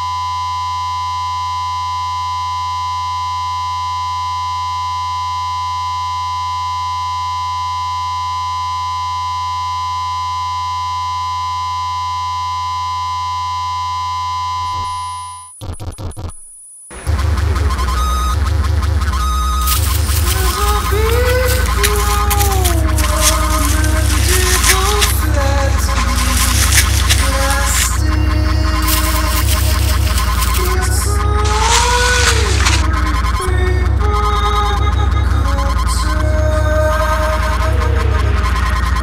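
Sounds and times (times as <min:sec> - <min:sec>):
glitchy stutters: 0:19.0 - 0:33.3
loud noisy electronic passage: 0:19.1 - 0:32.9.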